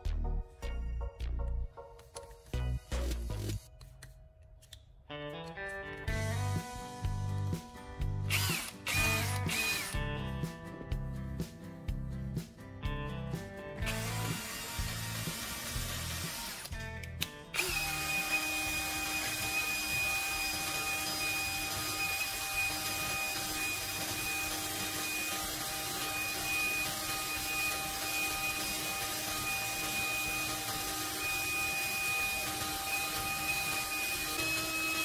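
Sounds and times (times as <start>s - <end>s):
drill motor whine: 8.3s - 10.0s, 17.6s - 35.0s.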